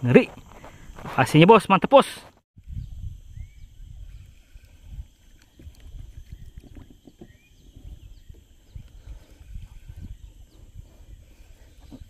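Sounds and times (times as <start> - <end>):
microphone handling noise: 2.2 - 12.0
wind rumbling: 2.6 - 12.0.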